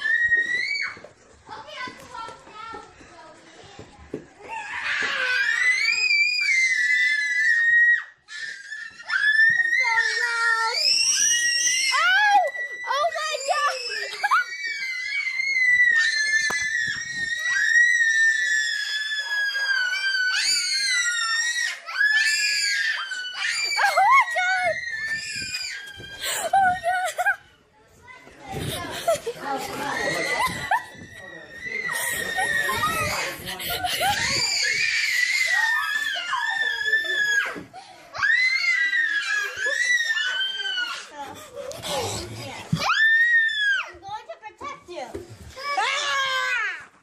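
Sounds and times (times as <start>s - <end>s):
girl screaming: 4.7s - 27.3s.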